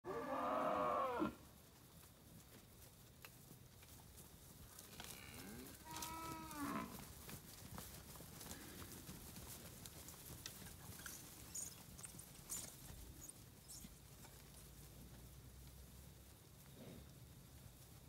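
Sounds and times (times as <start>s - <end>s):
cattle mooing: 5.0s - 7.0s.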